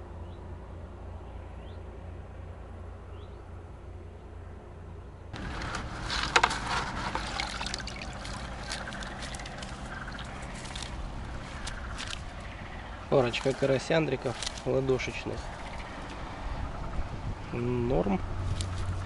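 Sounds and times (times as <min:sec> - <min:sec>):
water dripping off mesh: 0:06.4 - 0:12.4.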